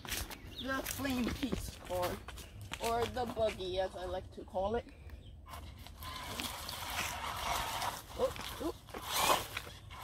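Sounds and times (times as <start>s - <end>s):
toy car motor whirring: 5.5s - 10.0s
tyres scrabbling in sand and leaves: 5.5s - 10.0s.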